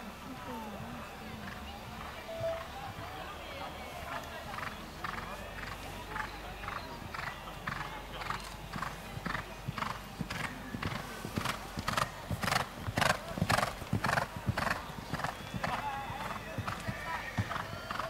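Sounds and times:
horse hoofbeats on sand: 4.5s - 18.0s.

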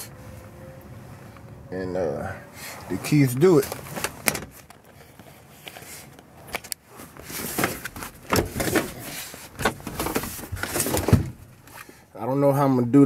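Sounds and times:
rustling against car seats: 2.5s - 12.0s
clicks and knocks in a car: 9.6s - 11.5s.

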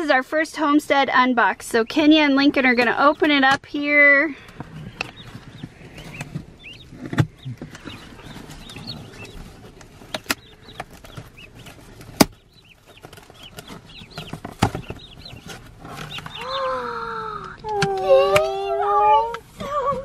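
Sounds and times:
turkey poults peeping: 4.4s - 19.4s.

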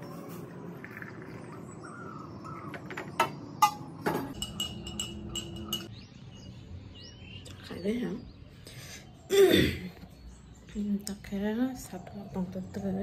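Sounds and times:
spoon clinking against glass mug: 3.6s - 5.9s.

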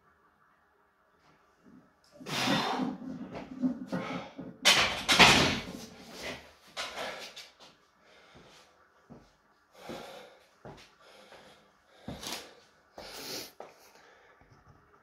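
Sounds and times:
man breathing hard: 6.2s - 8.7s, 9.7s - 14.5s.

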